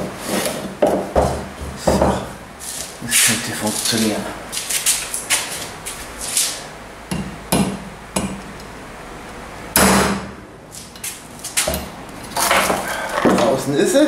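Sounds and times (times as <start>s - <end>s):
hammer striking metal: 7.1s - 8.4s.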